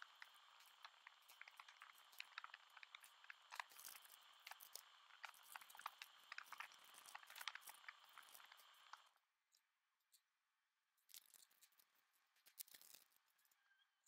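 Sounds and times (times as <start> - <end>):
crackling plastic bags being handled: 0.0 - 9.1.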